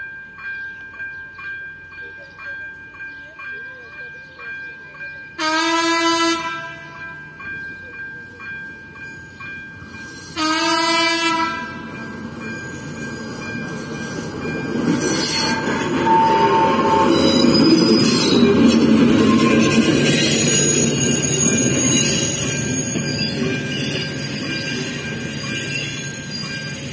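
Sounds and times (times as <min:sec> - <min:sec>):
locomotive engine and wheels: 0:00.0 - 0:26.9
locomotive horn blasts: 0:05.4 - 0:07.0, 0:10.4 - 0:11.9, 0:15.4 - 0:17.2.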